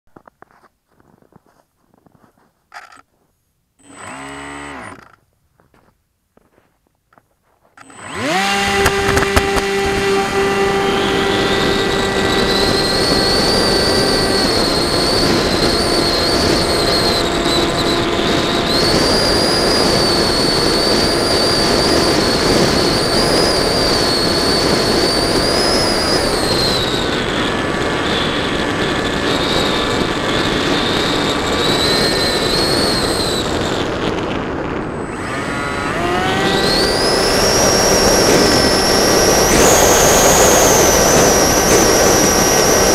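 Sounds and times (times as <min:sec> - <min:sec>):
electric model plane motor whine: 0:03.8 - 0:05.2, 0:07.8 - 0:42.9
rushing air: 0:35.0 - 0:42.9.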